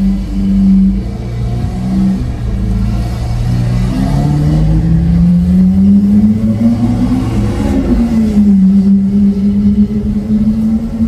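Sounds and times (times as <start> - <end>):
sports car engine accelerating: 0.0 - 11.0.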